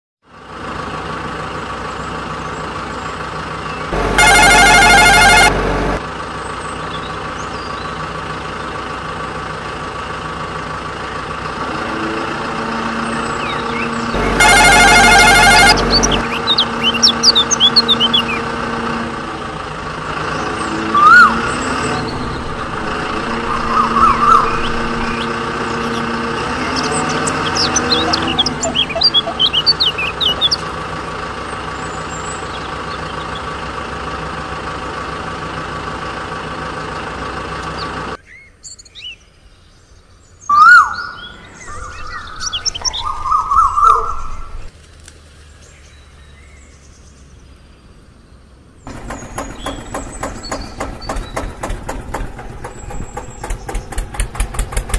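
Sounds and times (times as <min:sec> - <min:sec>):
vehicle engine running: 0:00.2 - 0:38.2, 0:40.2 - 0:47.7, 0:48.8 - 0:54.9
birds chirping: 0:01.8 - 0:08.8, 0:12.9 - 0:33.6, 0:37.6 - 0:44.7, 0:45.4 - 0:54.9.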